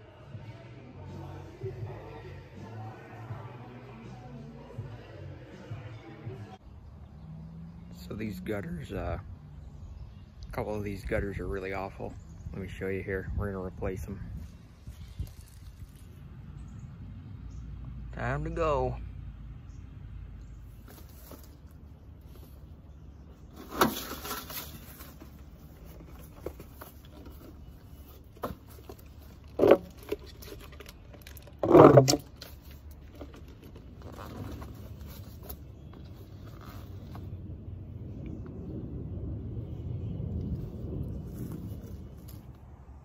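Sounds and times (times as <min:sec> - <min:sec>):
plastic crinkling and scraping: 0:14.4 - 0:16.2, 0:20.8 - 0:37.4
low rumble: 0:36.1 - 0:43.0.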